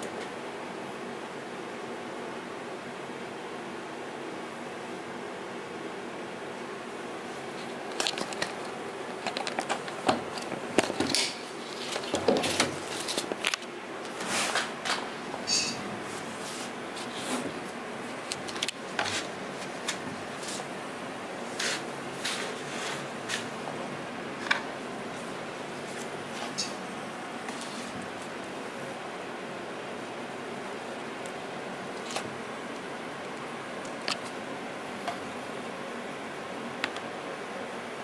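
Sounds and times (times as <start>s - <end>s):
laptop keyboard typing: 7.5s - 13.7s.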